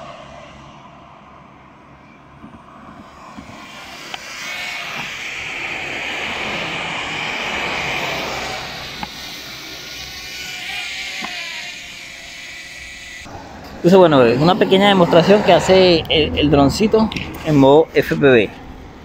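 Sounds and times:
drone propellers whirring: 0.0s - 19.0s.

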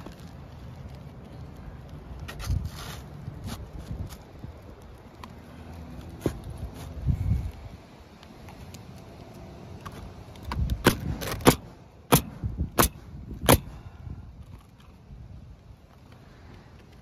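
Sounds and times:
knife cutting shingle with snaps: 10.4s - 13.8s.

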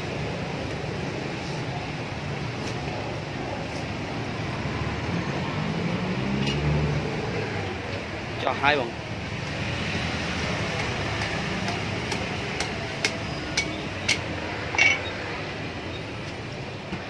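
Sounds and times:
cleaver chopping coconut husk: 10.6s - 14.3s.

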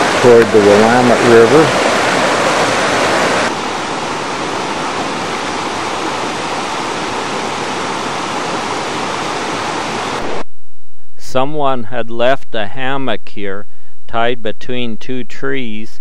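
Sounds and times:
creek rushing over rocks: 0.0s - 10.4s.

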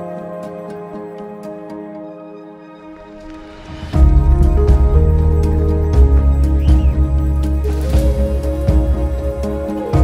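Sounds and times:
soft new-age music: 0.0s - 10.0s.

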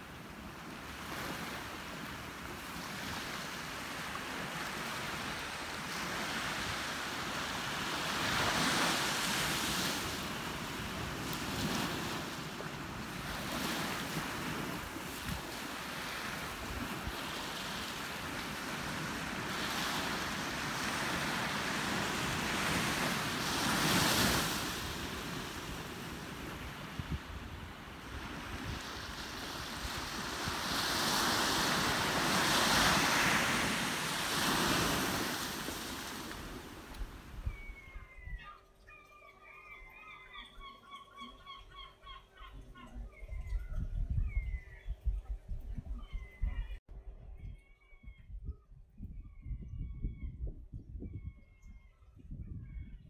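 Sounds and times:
small waves washing onto beach: 0.0s - 37.4s.

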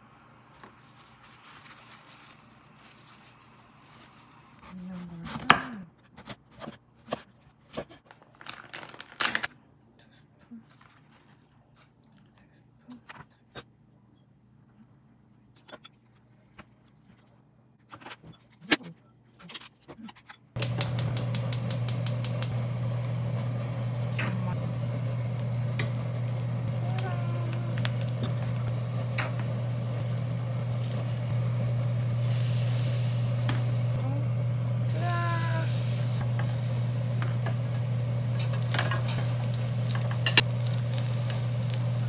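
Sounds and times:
steady low hum: 20.6s - 42.0s.

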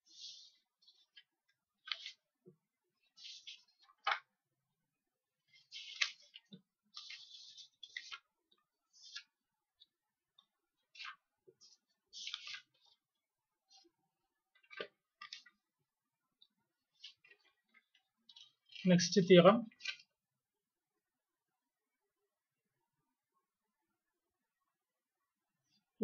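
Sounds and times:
scratchy rustles: 0.0s - 2.3s, 3.0s - 4.2s, 5.4s - 9.9s, 10.8s - 13.1s.

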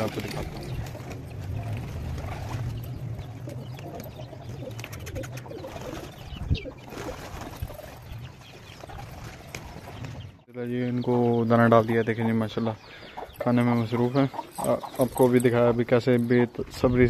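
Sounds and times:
pigeons cooing: 0.0s - 10.2s
pigeon wings fluttering: 0.0s - 10.3s.

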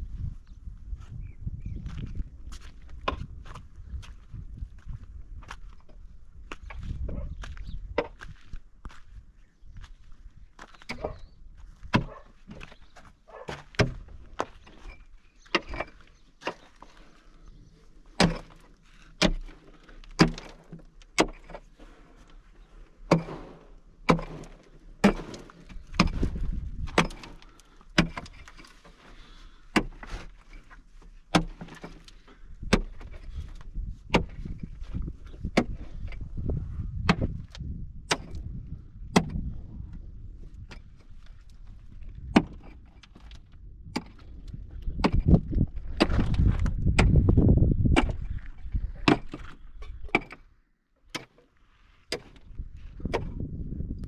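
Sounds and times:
sharp knocks: 23.1s - 27.3s.

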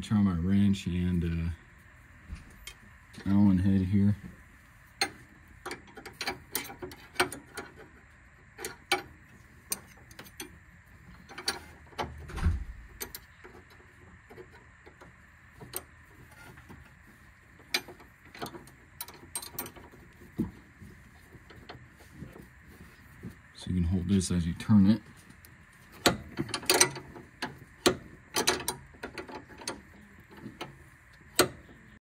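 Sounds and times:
dull low thump: 12.3s - 12.9s
wrench metal clicks: 25.9s - 31.7s.

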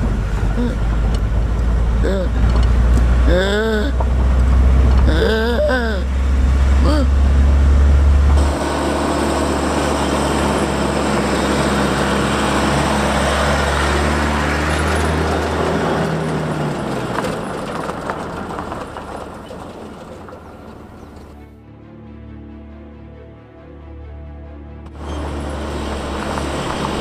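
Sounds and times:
motor vehicle rumbling: 0.0s - 21.7s, 24.6s - 27.0s.

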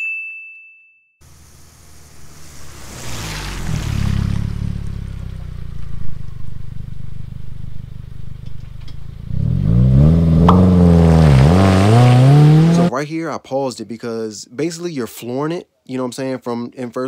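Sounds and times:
car engine accelerating: 1.2s - 12.9s.

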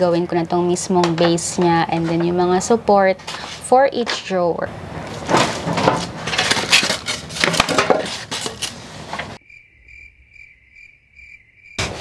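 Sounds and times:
metal panels clattering: 5.0s - 8.6s
paper sheets rustling: 5.1s - 9.4s
crickets trilling: 9.4s - 12.0s.

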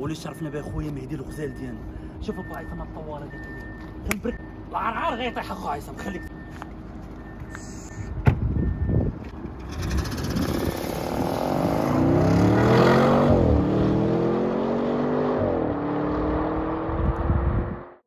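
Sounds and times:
sharp thump: 8.2s - 8.5s
car engine accelerating hard: 9.6s - 18.0s.

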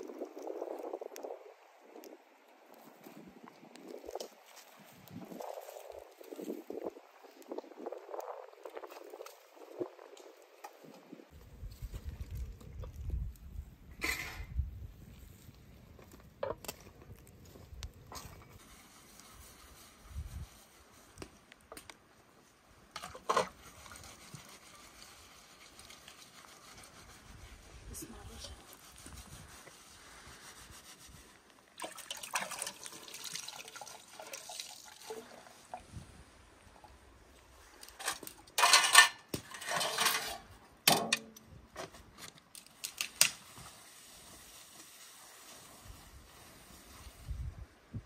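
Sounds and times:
metal dishes clattering: 38.0s - 41.3s
metal plates clinking: 38.0s - 41.4s.

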